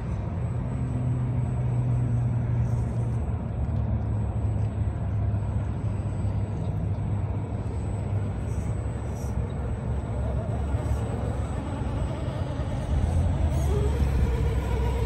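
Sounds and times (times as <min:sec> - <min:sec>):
toy truck electric motor humming: 0:07.3 - 0:15.0.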